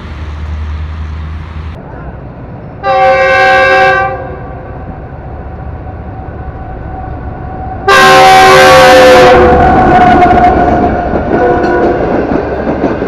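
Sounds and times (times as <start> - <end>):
train rumble: 0.0 - 13.0
locomotive horn blasts: 2.8 - 4.7, 7.8 - 10.6, 11.4 - 12.0.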